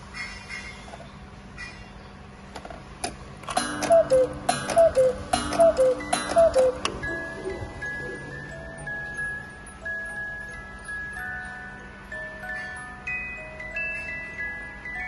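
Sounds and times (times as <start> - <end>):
clock mechanism click: 3.0 - 7.0
cuckoo clock calls: 3.5 - 15.0
clock ticking: 3.6 - 7.2.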